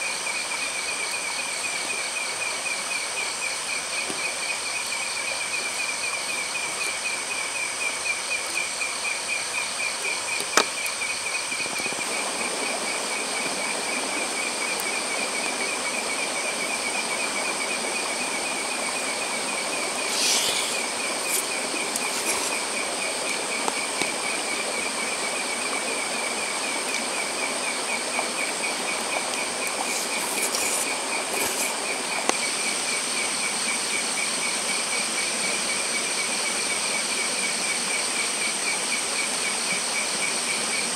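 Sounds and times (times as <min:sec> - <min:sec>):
high steady insect whine: 0:00.0 - 0:40.9
insects trilling: 0:00.0 - 0:40.9.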